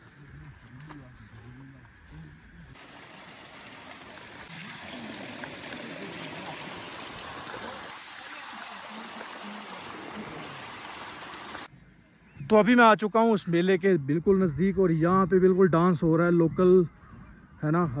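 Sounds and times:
stream rushing over rocks: 0:02.8 - 0:11.7.

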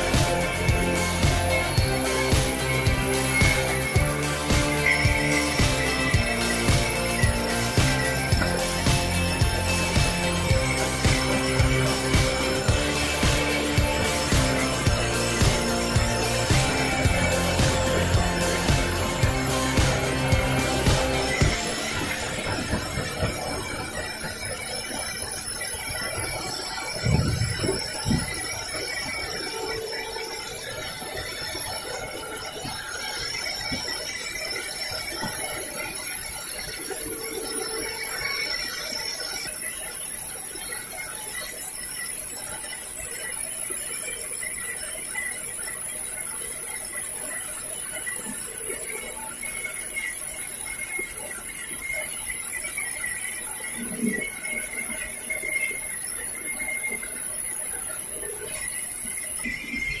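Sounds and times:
bandsaw cutting logs: 0:00.0 - 0:23.8
saw machine running: 0:00.0 - 0:42.4.

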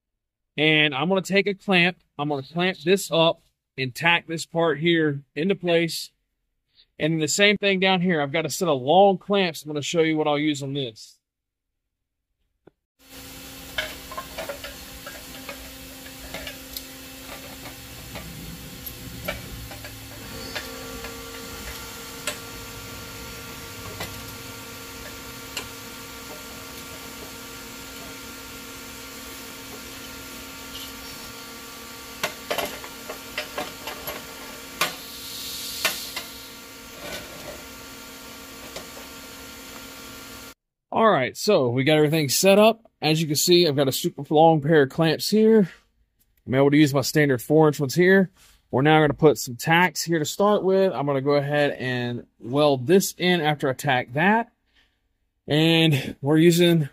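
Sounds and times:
steady hum: 0:13.1 - 0:40.6.

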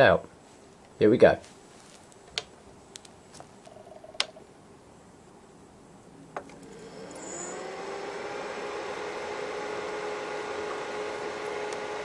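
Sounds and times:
cooling fans whirring: 0:06.2 - 0:12.0.

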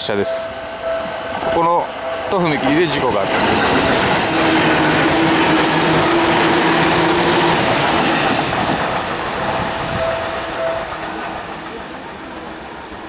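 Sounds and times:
train wheels clacking: 0:00.0 - 0:12.6
train whine: 0:00.0 - 0:13.0.

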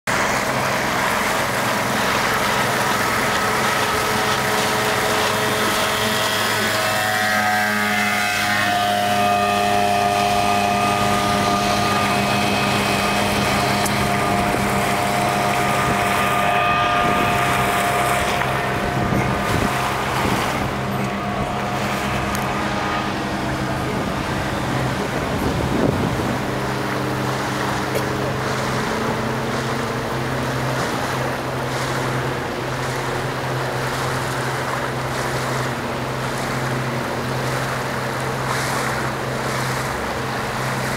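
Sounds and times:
motorboat engine running: 0:00.0 - 0:40.9
wind noise on microphone: 0:10.3 - 0:27.2.

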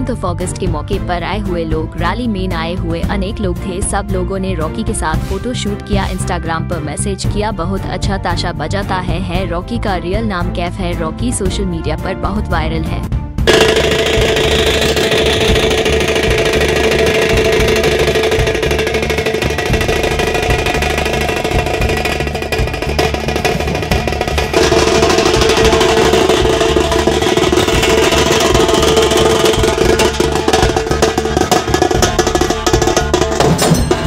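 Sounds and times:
barrel drums beating: 0:13.4 - 0:34.0
fast tasha drum strokes: 0:13.5 - 0:34.0
steady ringing tone: 0:13.5 - 0:34.0.

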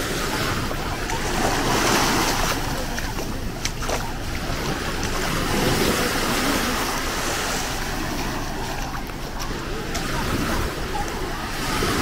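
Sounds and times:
waves washing on a beach: 0:00.0 - 0:12.0.

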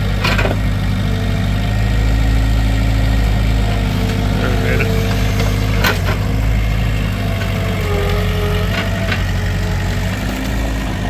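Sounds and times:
loader engine running: 0:00.0 - 0:11.0
wavering hydraulic whine: 0:04.0 - 0:09.4.

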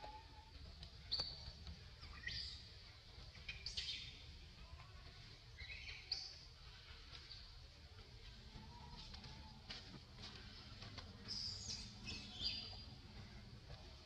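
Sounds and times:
low background rumble: 0:06.4 - 0:14.0.

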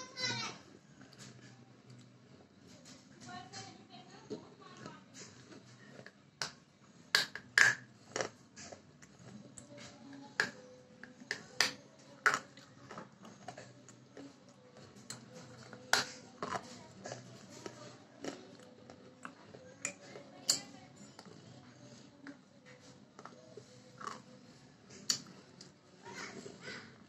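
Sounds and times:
person chewing food: 0:04.3 - 0:27.0
sharp loud mouth clicks: 0:25.0 - 0:25.3
wet mouth clicks: 0:25.0 - 0:25.4.

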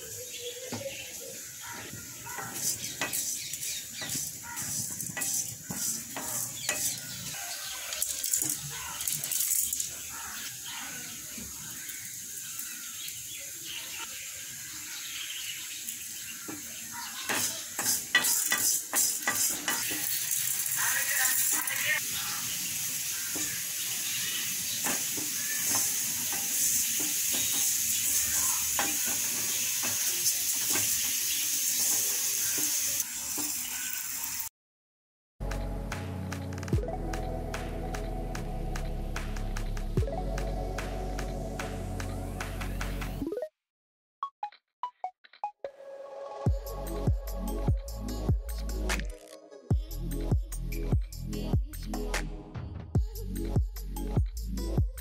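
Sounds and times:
roasting hiss: 0:00.0 - 0:34.5
grains rattling against metal: 0:02.3 - 0:07.2, 0:07.8 - 0:10.4, 0:17.8 - 0:22.0
wooden spoon scraping a pan: 0:02.3 - 0:07.4.

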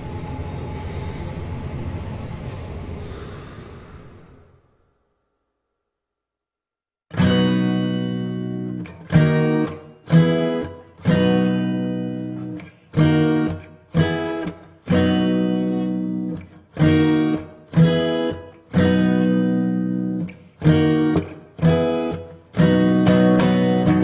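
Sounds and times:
acoustic guitar strumming chords: 0:07.1 - 0:24.0.

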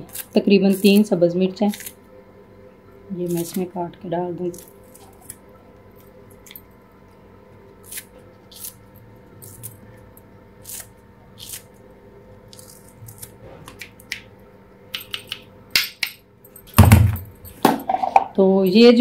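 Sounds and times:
knife snipping chillies: 0:00.0 - 0:02.0
faint steady hum: 0:00.0 - 0:19.0.

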